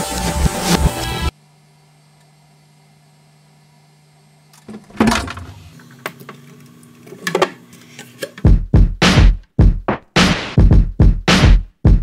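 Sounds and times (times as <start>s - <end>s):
heavy low thumps: 8.5s - 10.0s, 10.6s - 12.0s.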